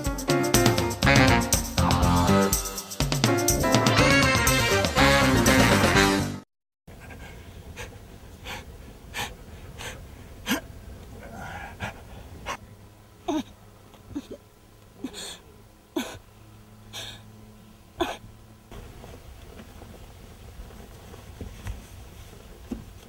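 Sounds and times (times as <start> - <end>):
people panting and gasping: 6.9 - 12.7, 15.0 - 16.3, 16.9 - 17.3.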